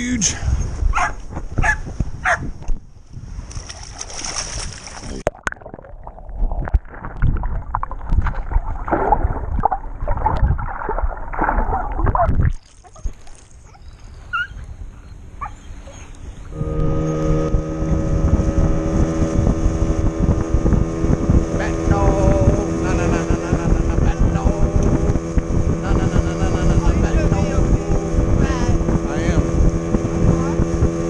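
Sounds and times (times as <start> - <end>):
water splashing: 3.4 - 13.8, 16.5 - 31.0
muffled underwater gurgling: 16.5 - 31.0.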